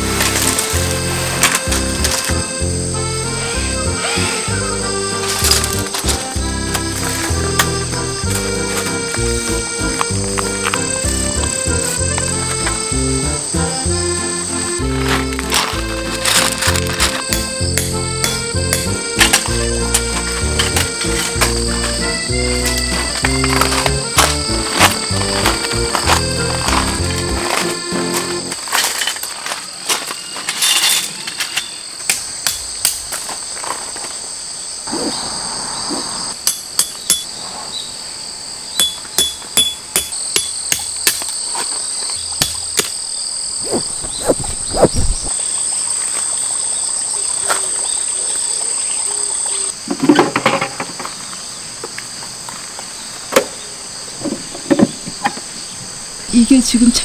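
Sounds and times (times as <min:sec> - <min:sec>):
tent pegs being driven in: 0:00.0 - 0:34.0, 0:39.0 - 0:45.4
insects chirring: 0:00.0 - 0:57.0.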